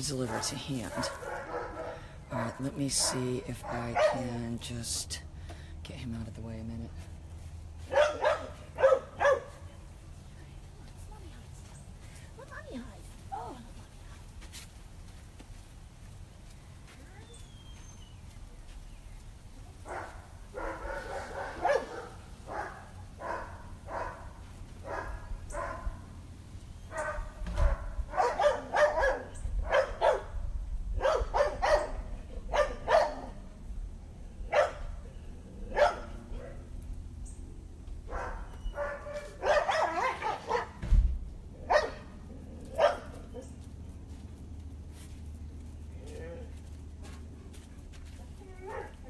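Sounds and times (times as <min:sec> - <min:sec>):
puppy barking and yipping: 0:07.9 - 0:09.5, 0:19.9 - 0:26.0, 0:26.8 - 0:30.3, 0:31.0 - 0:33.4, 0:34.5 - 0:34.8, 0:35.8 - 0:36.1, 0:38.1 - 0:40.8, 0:41.7 - 0:42.1, 0:42.7 - 0:43.5.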